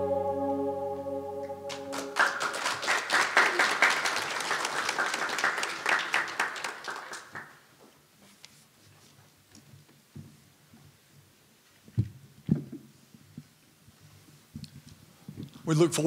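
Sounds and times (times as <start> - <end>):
organ chord: 0.0 - 2.7
congregation applauding: 1.7 - 7.6.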